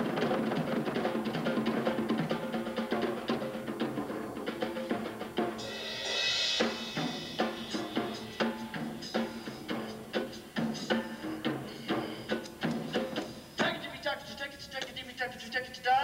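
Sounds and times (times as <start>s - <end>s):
drum strokes: 0.0s - 14.0s
cymbal crash: 5.6s - 13.6s.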